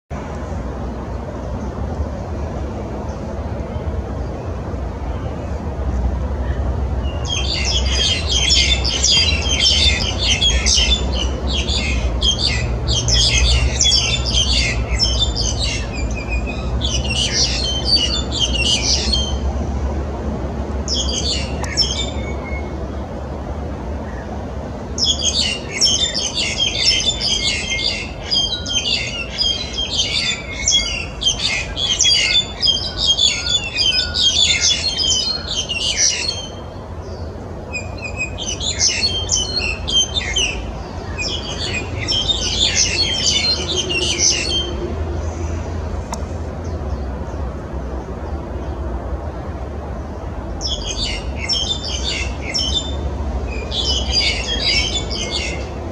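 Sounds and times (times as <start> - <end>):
starlings calling: 6.4 - 19.6, 20.8 - 22.8, 24.0 - 45.7, 50.0 - 55.9.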